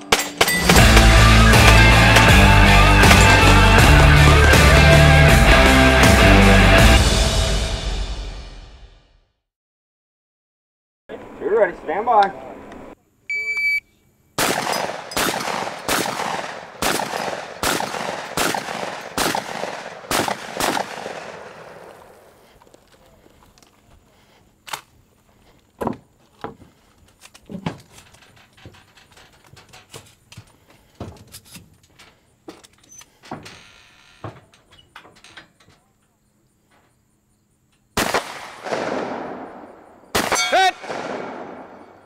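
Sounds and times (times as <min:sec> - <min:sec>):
rifle shots echoing: 0:00.0 - 0:03.9, 0:14.4 - 0:22.4, 0:38.0 - 0:42.0.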